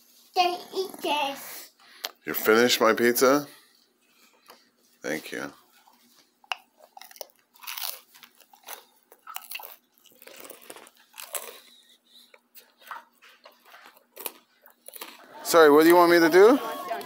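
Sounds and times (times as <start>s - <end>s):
toddler chewing crunchy food: 5.7s - 17.0s.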